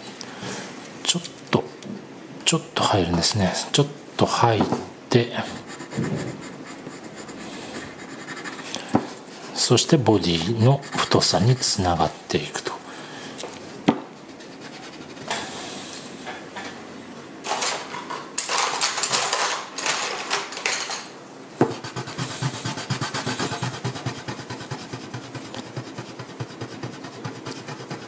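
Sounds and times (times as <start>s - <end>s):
eraser scrubbing on paper: 5.5s - 9.5s, 10.3s - 11.8s, 14.3s - 15.4s, 21.7s - 28.0s.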